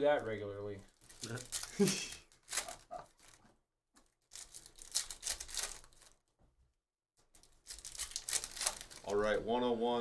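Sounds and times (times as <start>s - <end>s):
foil wrappers crinkling: 0.8s - 6.3s, 7.2s - 9.3s.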